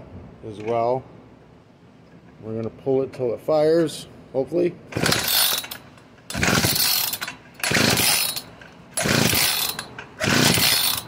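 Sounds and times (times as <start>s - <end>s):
recoil starter rope pulled: 4.9s - 11.0s.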